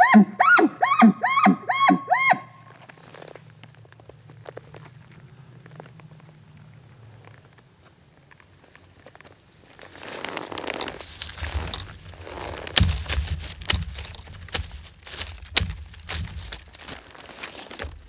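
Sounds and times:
close rustling and crunching: 0:02.5 - 0:18.0
sharp knocks and thuds: 0:11.1 - 0:18.0.

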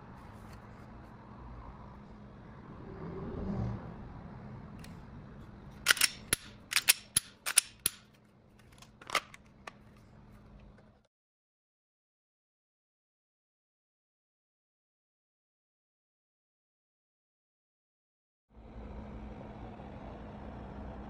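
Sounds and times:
pistol clicks: 0:05.9 - 0:08.1.

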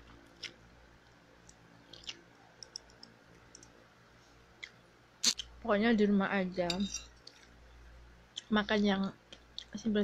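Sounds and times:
person chewing noodles: 0:00.0 - 0:00.7, 0:01.4 - 0:03.7.

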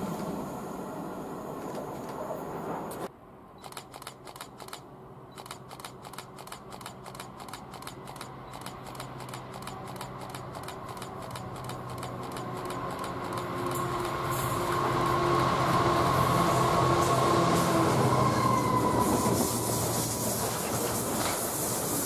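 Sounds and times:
freight train rumbling past: 0:00.0 - 0:03.1, 0:06.2 - 0:22.0
distant approaching train hum: 0:00.0 - 0:22.0
rapid regular clicking: 0:05.4 - 0:13.6.

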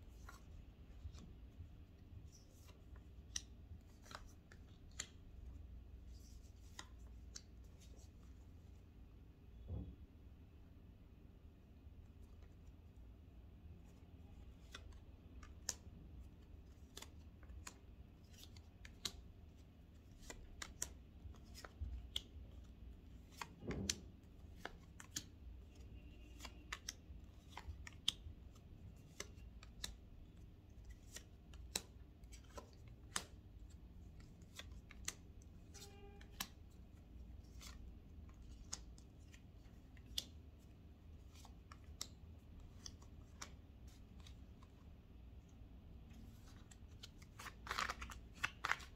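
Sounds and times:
rustle of cards: 0:46.0 - 0:48.9
cards clicking while shuffled: 0:46.4 - 0:48.9.

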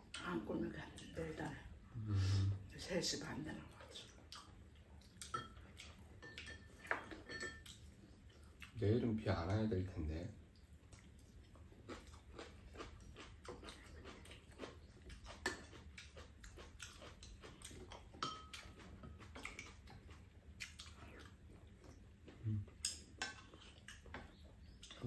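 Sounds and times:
chewing: 0:03.6 - 0:08.8, 0:10.4 - 0:25.0.

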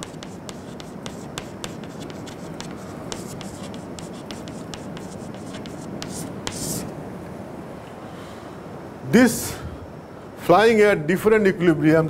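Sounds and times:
chalk tapping and scratching: 0:00.0 - 0:06.9.

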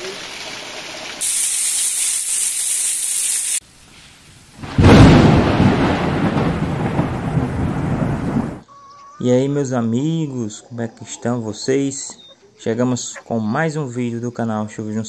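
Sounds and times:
heavy rain hissing: 0:00.0 - 0:08.6
thunder clap and rumble: 0:04.6 - 0:08.6.

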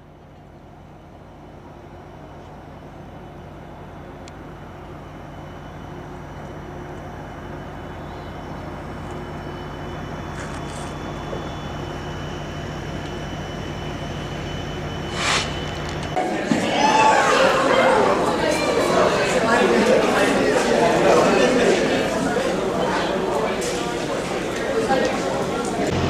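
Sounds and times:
engine drone with high whine: 0:00.0 - 0:16.2, 0:25.8 - 0:26.0.

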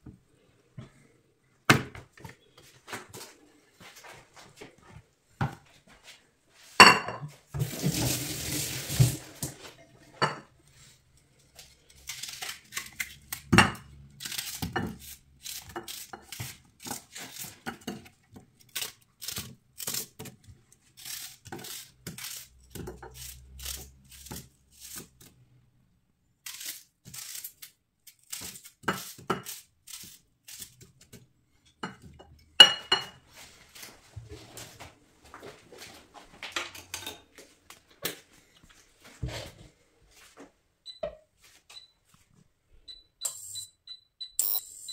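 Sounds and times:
knife cutting onion: 0:11.6 - 0:25.4, 0:26.4 - 0:31.2
ceramic plate clinking: 0:32.6 - 0:33.2.

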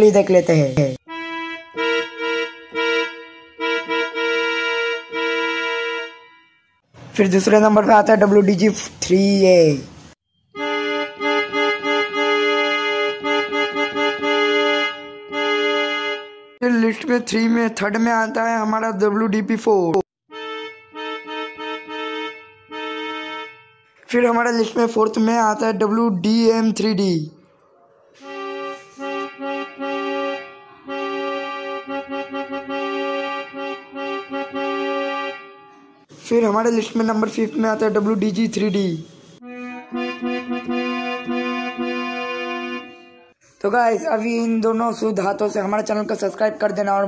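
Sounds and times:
keyboard chord imitating train horn: 0:01.1 - 0:06.9, 0:10.5 - 0:16.6, 0:20.3 - 0:24.1, 0:28.2 - 0:36.0, 0:39.4 - 0:43.4.

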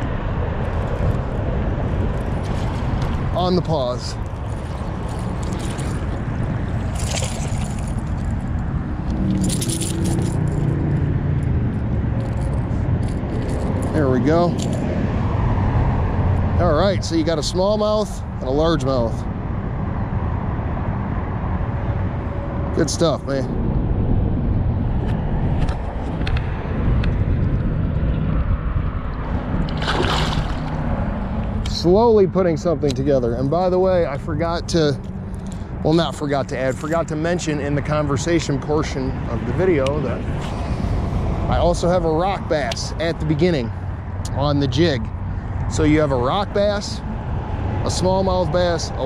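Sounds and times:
wind rumbling on microphone: 0:00.0 - 0:49.0
fish splashing in water: 0:04.2 - 0:08.2, 0:29.7 - 0:31.1.

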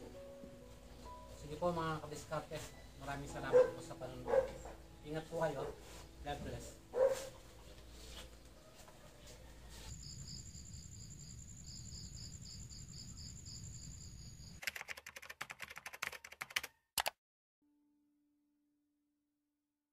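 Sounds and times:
insects chirping: 0:09.9 - 0:14.6.

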